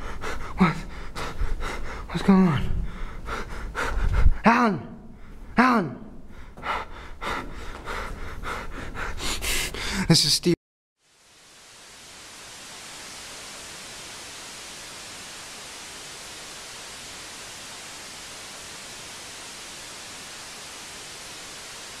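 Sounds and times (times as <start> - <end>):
static hiss: 11.0 - 22.0.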